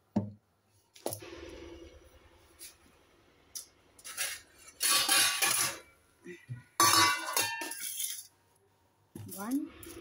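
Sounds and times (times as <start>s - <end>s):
metal kitchenware clanking: 4.0s - 6.0s, 6.7s - 8.3s.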